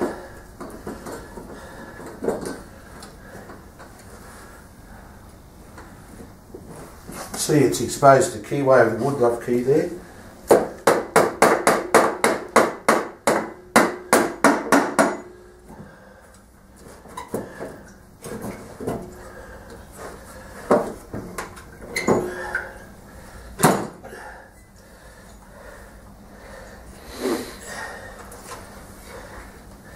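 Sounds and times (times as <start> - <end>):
hammer tapping on metal: 10.5 - 15.4.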